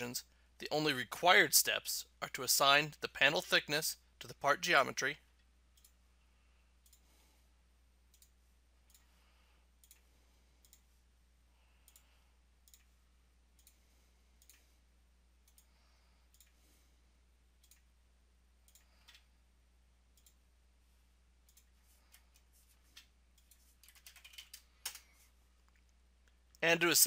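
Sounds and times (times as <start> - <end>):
low steady hum: 2.0 - 23.8
computer mouse clicks: 5.7 - 6.0, 6.8 - 7.1, 8.1 - 9.1, 9.8 - 10.9, 11.8 - 12.9, 13.6 - 13.8, 14.4 - 14.7, 15.4 - 16.6, 17.6 - 17.9, 18.6 - 19.3, 20.1 - 20.4, 21.4 - 26.4.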